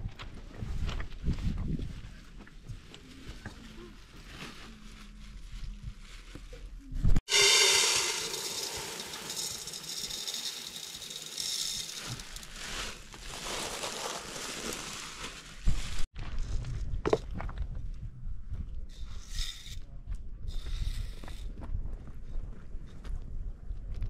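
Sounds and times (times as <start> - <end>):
lentils pouring into metal pot: 7.3 - 14.8.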